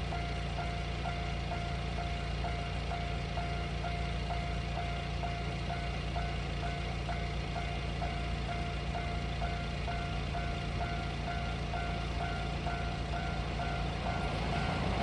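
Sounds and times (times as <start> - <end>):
level crossing warning bell: 0.0 - 15.0
truck engine idling: 0.0 - 15.0.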